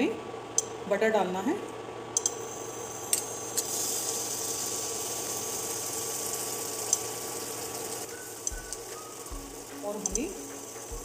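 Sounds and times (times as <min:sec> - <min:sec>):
cooktop hum: 0:00.0 - 0:11.0
butter sizzling in pan: 0:02.3 - 0:11.0.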